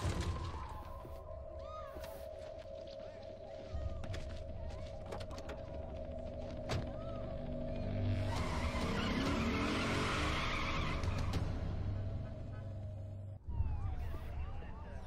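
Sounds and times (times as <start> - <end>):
tense music score: 0.0 - 15.0
car engine revving: 8.0 - 13.0
car tyres skidding: 8.2 - 12.1.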